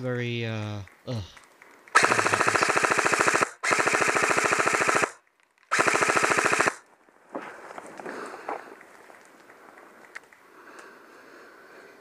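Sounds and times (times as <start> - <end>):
airsoft gun firing bursts: 1.9 - 6.8
rustling: 6.9 - 10.5.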